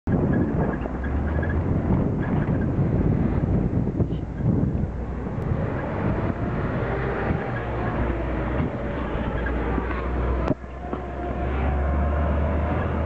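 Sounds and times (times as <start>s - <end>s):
truck body rattling: 0.1s - 4.8s
truck engine running hard: 0.1s - 13.0s.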